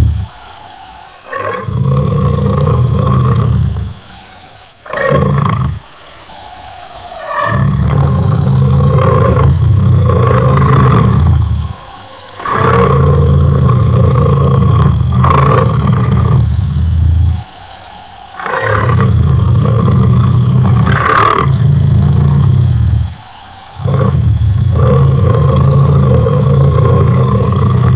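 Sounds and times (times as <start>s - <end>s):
lion roaring: 0.0s - 4.1s, 4.8s - 27.9s.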